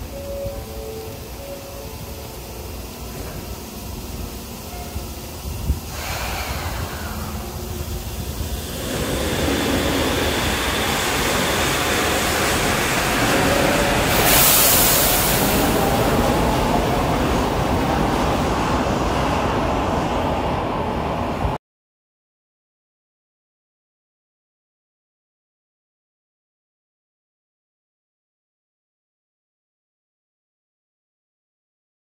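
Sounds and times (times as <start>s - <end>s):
monorail train running: 0.0s - 21.6s
brief hiss: 5.8s - 7.6s, 14.1s - 15.8s.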